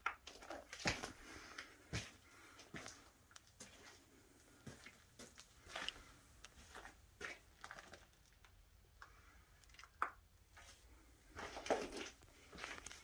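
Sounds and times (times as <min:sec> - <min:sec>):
footsteps and scuffs: 0:00.3 - 0:07.4, 0:10.6 - 0:13.0.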